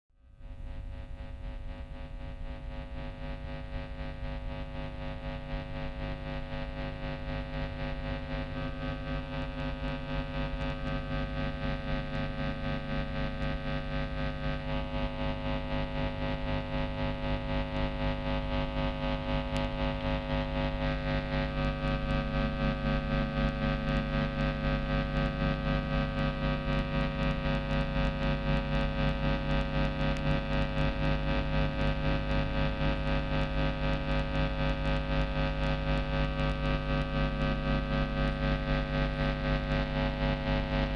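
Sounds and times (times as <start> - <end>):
distorted electric guitar drone: 3.0 - 40.9.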